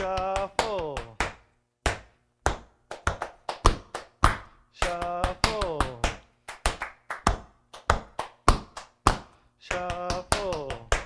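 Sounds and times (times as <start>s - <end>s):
person's voice: 0.0s - 1.2s, 4.8s - 6.2s, 9.6s - 11.0s.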